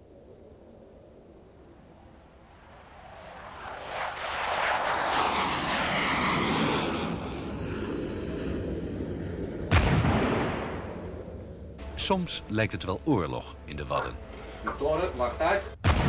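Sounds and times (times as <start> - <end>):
jet engine roar: 0.0 - 11.9
loud bang: 9.5 - 11.4.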